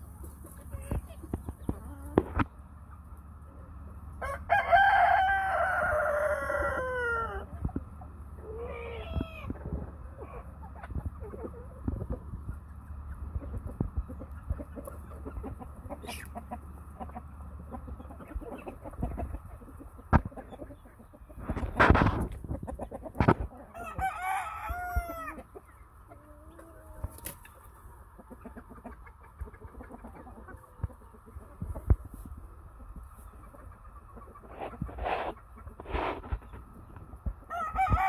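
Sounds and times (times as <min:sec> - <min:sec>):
chickens clucking: 0:00.0 - 0:38.0
rooster crowing: 0:04.2 - 0:07.5, 0:23.7 - 0:25.4, 0:37.5 - 0:38.0.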